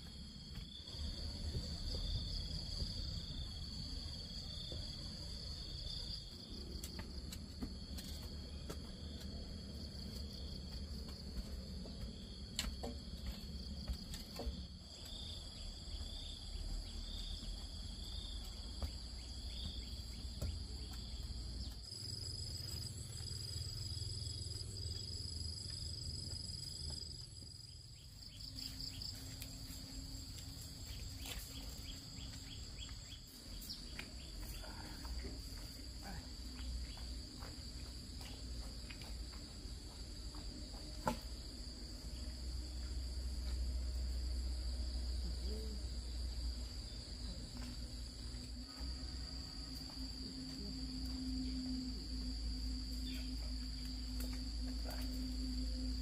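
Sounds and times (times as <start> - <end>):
insects trilling: 0.0 - 56.0
rapid pulsed insect chirping: 0.0 - 56.0
low background hum: 27.9 - 56.0.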